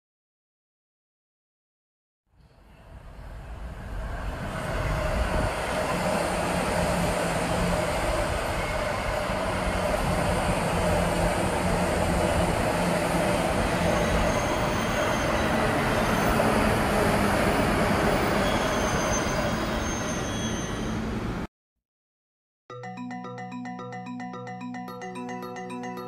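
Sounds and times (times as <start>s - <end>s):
train wheels rumbling on track: 3.2s - 21.4s
high wheel squeals: 13.5s - 21.2s.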